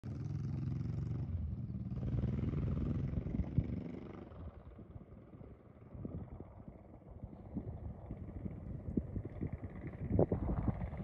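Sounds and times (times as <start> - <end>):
vehicle engine running at low speed: 0.0 - 11.0.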